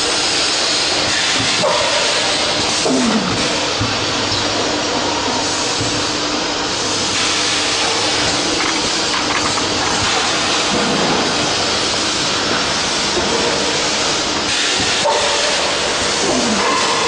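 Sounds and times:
packaging machine running: 0:00.0 - 0:17.0.

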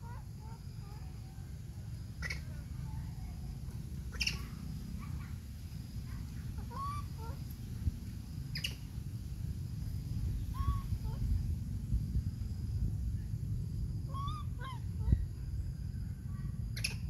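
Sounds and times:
steady low rumble: 0:00.0 - 0:17.0
sharp high animal calls: 0:02.2 - 0:02.6, 0:04.1 - 0:05.4, 0:06.1 - 0:07.4, 0:10.4 - 0:11.3, 0:14.0 - 0:15.2.

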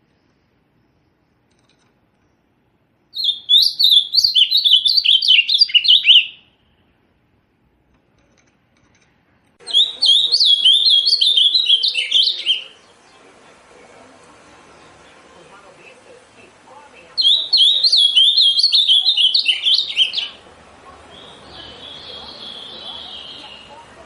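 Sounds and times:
bird singing whistled notes: 0:03.2 - 0:06.5, 0:09.6 - 0:13.1, 0:17.2 - 0:20.4, 0:21.2 - 0:23.8.

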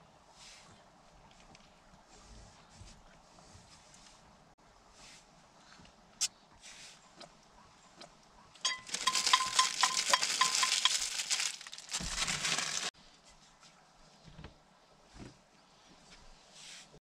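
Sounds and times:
plastic wrap crinkling: 0:08.7 - 0:12.9.

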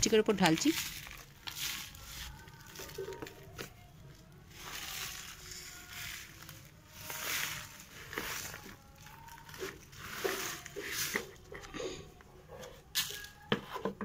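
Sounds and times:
soil pouring and rustling: 0:00.0 - 0:11.7
hand scraping soil from tub: 0:04.5 - 0:11.6.

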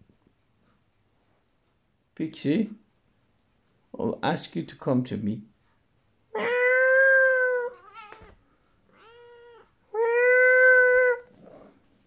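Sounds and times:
cat meowing: 0:06.3 - 0:11.7.

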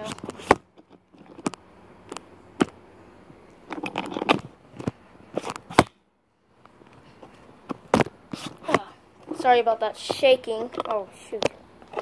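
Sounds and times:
fingers scraping microphone: 0:03.7 - 0:04.6.

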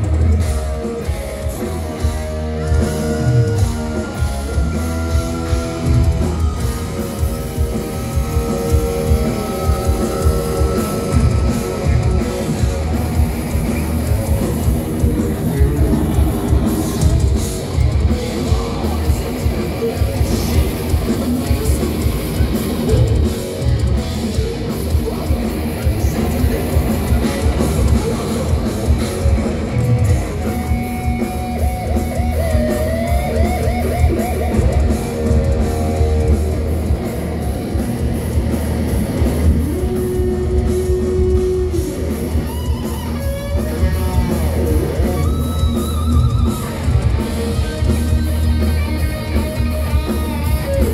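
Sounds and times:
lead guitar line with bends: 0:00.0 - 0:50.9
metal band playing live: 0:00.0 - 0:50.9.

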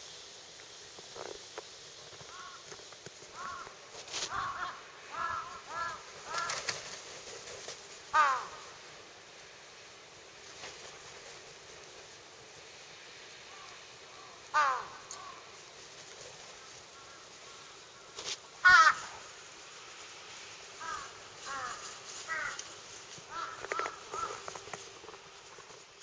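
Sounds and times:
crows cawing: 0:02.3 - 0:06.8, 0:08.1 - 0:08.8, 0:13.5 - 0:15.5, 0:16.6 - 0:19.3, 0:20.8 - 0:24.8.

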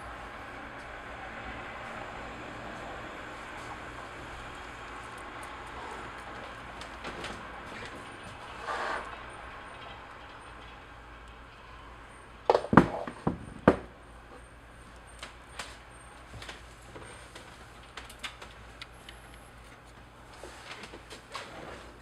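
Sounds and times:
faint steady hum: 0:00.0 - 0:22.0
sharp knocks and clatters: 0:12.5 - 0:13.9.

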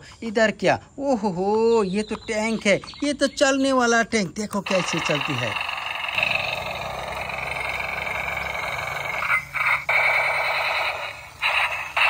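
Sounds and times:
toy buzzy pulsing electronic tone: 0:04.6 - 0:12.0.

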